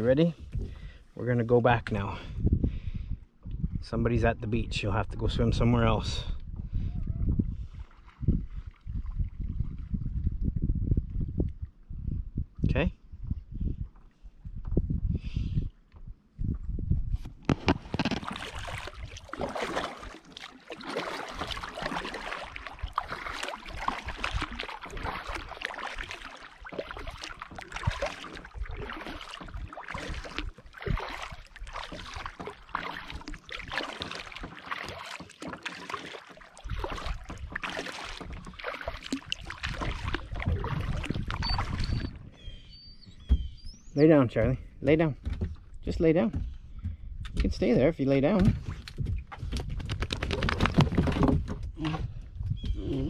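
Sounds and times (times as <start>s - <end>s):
wind rumble on microphone: 0.0s - 1.1s, 1.7s - 19.3s, 38.2s - 53.0s
water sloshing against hull: 0.0s - 53.0s
paddle strokes splashing: 17.5s - 42.6s.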